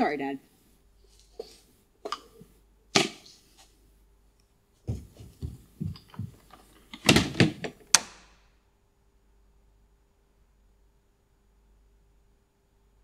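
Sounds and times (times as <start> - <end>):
footsteps on wooden porch: 4.8 - 7.8
clatter of knocks: 4.9 - 7.9.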